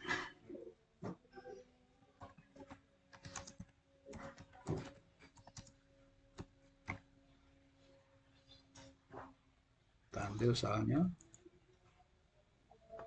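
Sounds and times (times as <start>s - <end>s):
faint steady hum: 0.0s - 13.0s
keyboard typing: 2.6s - 7.0s.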